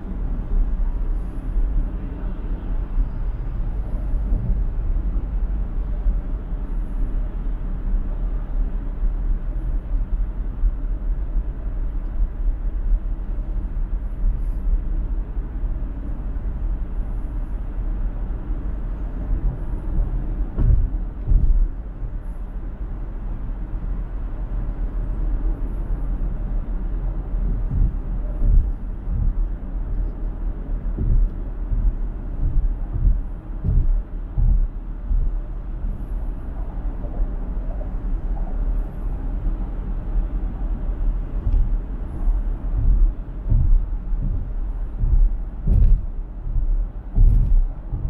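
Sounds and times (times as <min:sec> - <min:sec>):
road and tyre noise: 0:00.0 - 0:48.0
short thumps: 0:20.5 - 0:21.7, 0:27.4 - 0:29.5, 0:30.9 - 0:35.4, 0:41.4 - 0:41.8, 0:42.7 - 0:48.0.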